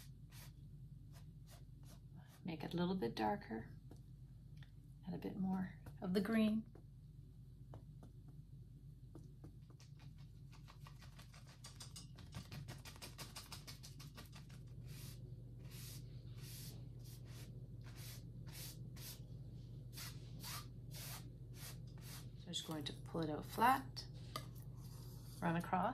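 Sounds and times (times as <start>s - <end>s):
bristle brush strokes on canvas: 14.7s - 22.5s.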